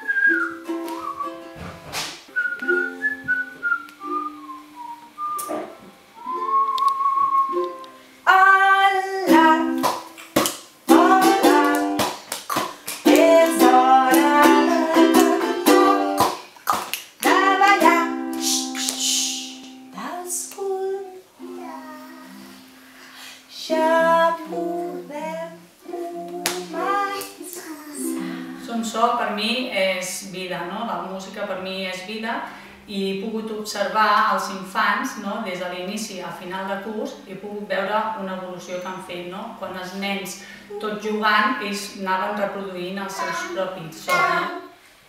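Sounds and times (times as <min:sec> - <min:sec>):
ukulele strumming chords: 0:00.0 - 0:01.7, 0:05.5 - 0:16.5, 0:17.2 - 0:20.0, 0:21.4 - 0:22.9, 0:25.8 - 0:27.4, 0:28.0 - 0:28.7, 0:43.2 - 0:44.7
woman singing: 0:08.3 - 0:09.9, 0:10.9 - 0:12.1, 0:13.0 - 0:16.3, 0:17.2 - 0:21.3, 0:23.5 - 0:29.0, 0:43.2 - 0:44.7.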